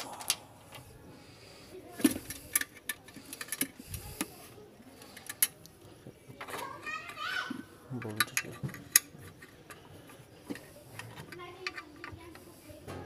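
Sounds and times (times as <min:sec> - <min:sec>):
plastic housing clicks and knocks: 0:08.0 - 0:09.8.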